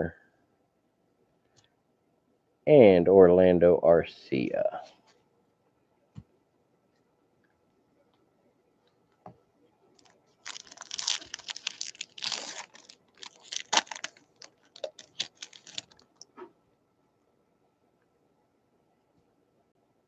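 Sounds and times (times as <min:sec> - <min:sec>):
wrapper tearing and crinkling: 0:10.0 - 0:16.1.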